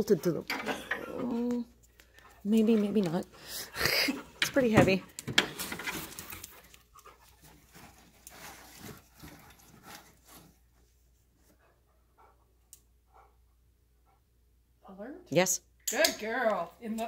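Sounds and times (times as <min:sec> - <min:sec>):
dog sniffing and panting: 0:01.8 - 0:14.5.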